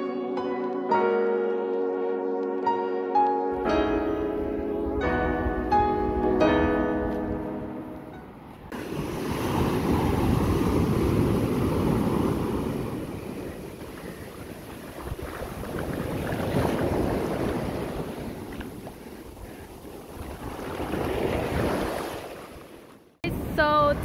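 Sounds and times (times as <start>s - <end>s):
piano tune: 0.0s - 8.8s
surf washing over sand: 8.7s - 24.0s.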